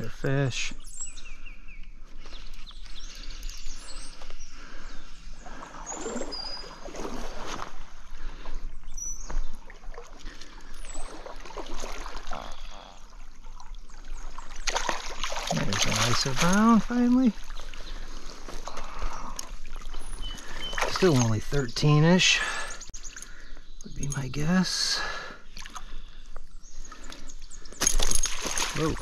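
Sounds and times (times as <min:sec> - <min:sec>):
fish splashing in water: 0:09.7 - 0:19.0, 0:19.6 - 0:21.3, 0:27.8 - 0:29.0.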